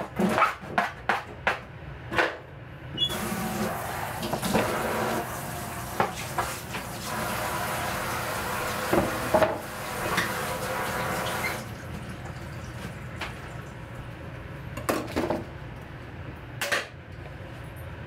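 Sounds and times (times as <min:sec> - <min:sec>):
tap water running into sink: 0:03.1 - 0:13.7
kitchen things clattering in sink: 0:14.8 - 0:15.5.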